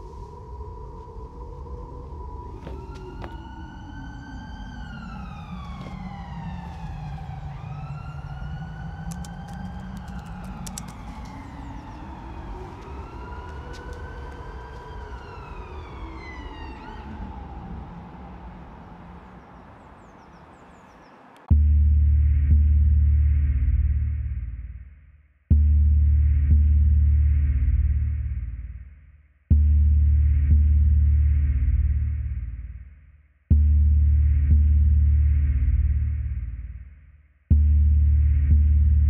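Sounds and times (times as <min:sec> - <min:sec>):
wailing siren: 0:00.0 - 0:21.5
low rumble: 0:00.0 - 0:32.8
faint clicks: 0:08.9 - 0:12.1.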